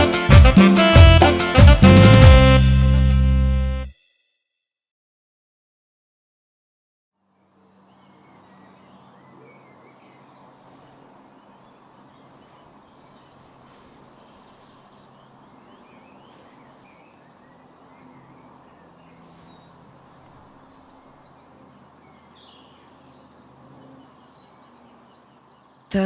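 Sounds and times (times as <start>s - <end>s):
bird chirps: 7.5s - 25.9s.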